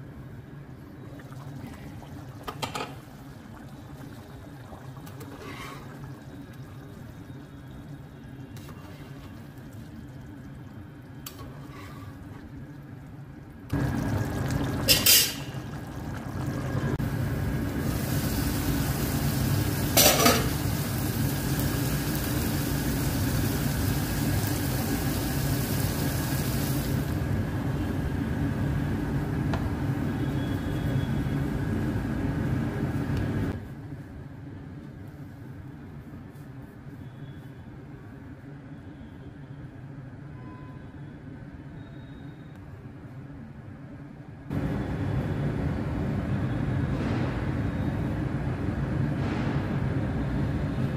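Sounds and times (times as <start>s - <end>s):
pot boiling and bubbling: 0.0s - 31.8s.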